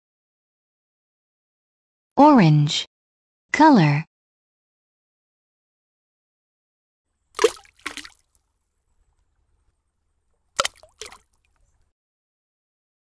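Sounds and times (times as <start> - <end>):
cartoon splash plops: 7.4 - 8.2, 10.6 - 11.2.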